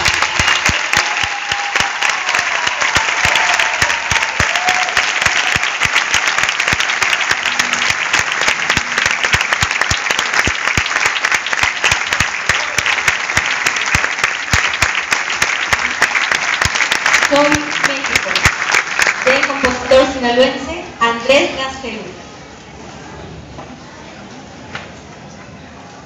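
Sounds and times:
audience applauding: 0.0 - 20.2.

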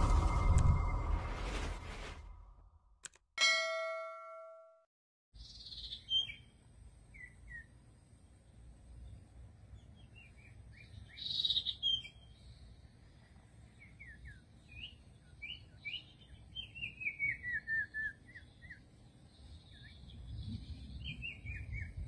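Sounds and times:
small songbird chirping: 5.4 - 22.0.

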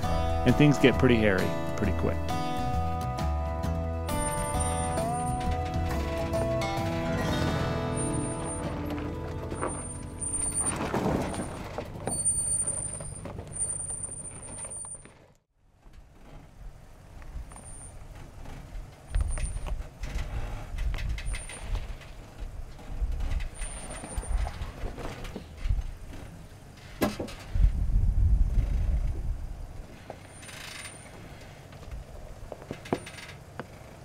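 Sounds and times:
truck engine running low: 0.0 - 34.0
high-pitched squeals: 4.1 - 15.2
tyres grinding over rock: 5.8 - 15.3.

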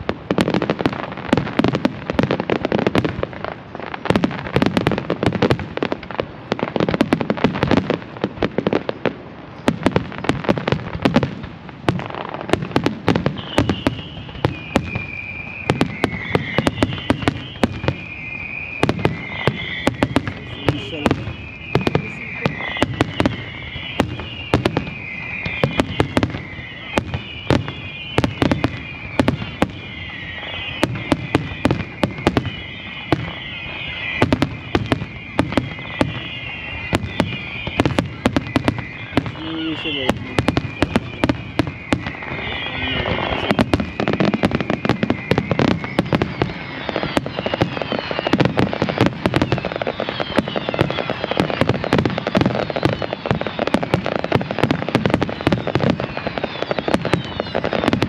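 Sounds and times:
fireworks bursting: 0.0 - 58.0
high wavering squeal: 32.5 - 48.4.

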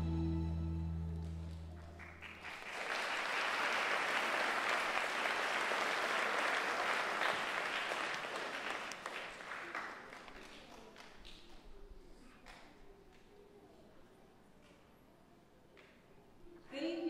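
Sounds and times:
held music notes: 0.0 - 1.8
audience applauding: 1.2 - 11.4.

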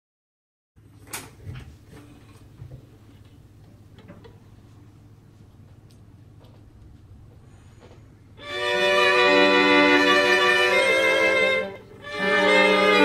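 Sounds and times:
string quartet bowed chords: 8.4 - 13.0.

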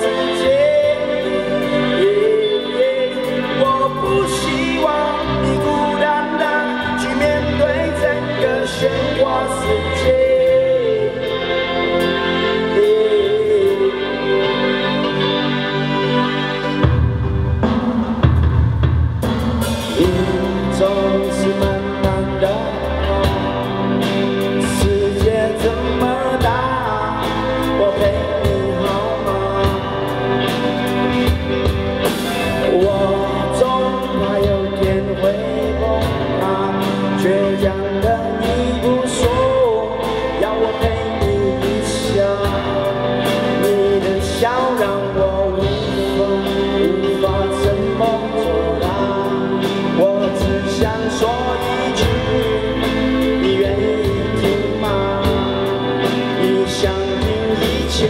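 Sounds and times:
man singing: 0.0 - 16.9, 19.6 - 58.0
bass guitar: 0.0 - 58.0
electric guitar: 0.0 - 58.0
drum kit beat: 16.7 - 58.0.

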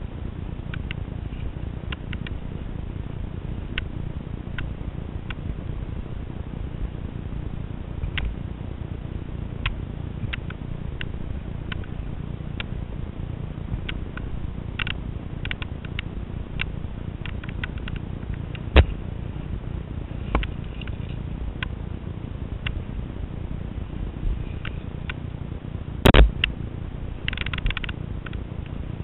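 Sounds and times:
camera handling rumble: 13.8 - 19.0, 20.2 - 21.2, 26.0 - 26.6, 27.2 - 28.4.

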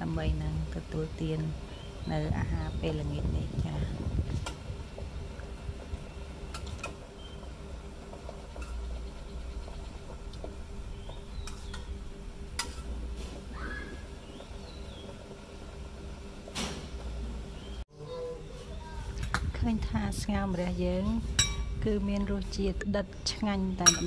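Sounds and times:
steady low hum: 0.0 - 24.0
metal spoon clinking on pot: 23.8 - 24.0.

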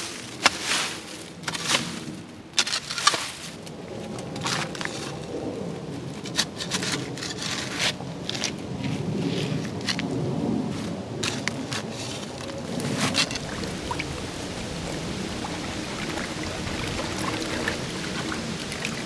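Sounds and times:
shovel scraping gravel: 0.0 - 3.6, 6.2 - 10.1, 10.8 - 19.0
running water trickling: 12.4 - 19.0.

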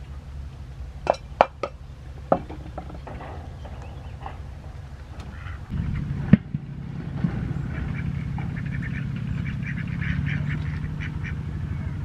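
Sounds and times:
steady low hum: 0.0 - 12.0
ducks quacking: 2.6 - 12.0.

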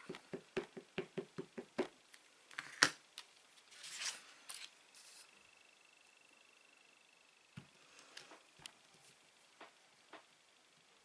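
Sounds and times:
paper rustling: 3.6 - 5.3.

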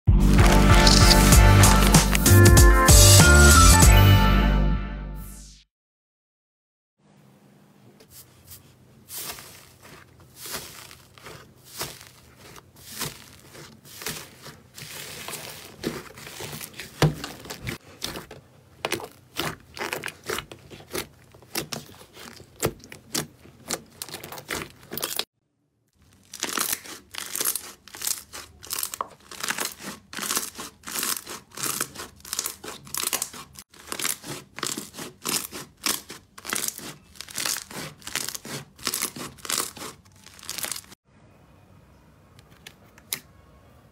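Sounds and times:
slime crackling: 9.0 - 25.3, 26.0 - 41.0.

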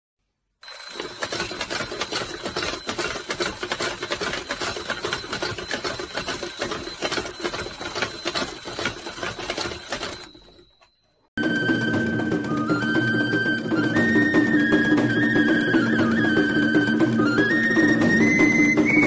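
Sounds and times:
mechanical alarm clock ringing: 0.6 - 11.3.

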